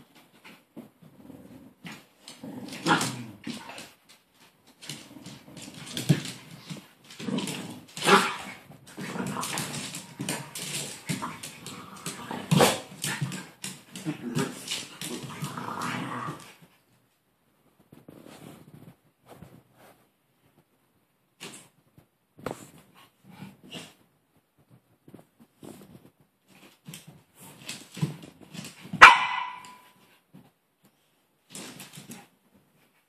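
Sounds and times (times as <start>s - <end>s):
dogs growling: 1.0s - 3.9s, 4.8s - 16.6s.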